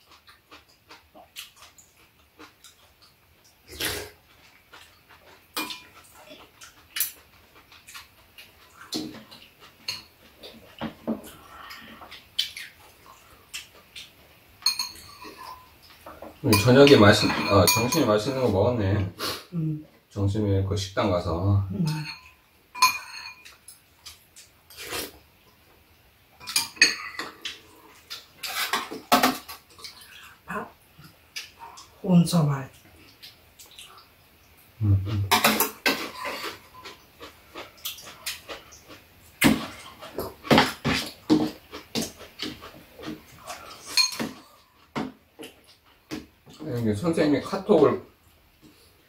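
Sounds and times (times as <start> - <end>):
slurping and chewing: 0.0 - 14.2, 23.4 - 25.6, 35.1 - 46.3
spoons clinking against bowls: 14.6 - 15.7, 16.4 - 18.4, 21.8 - 23.7, 26.4 - 27.4, 43.8 - 44.6.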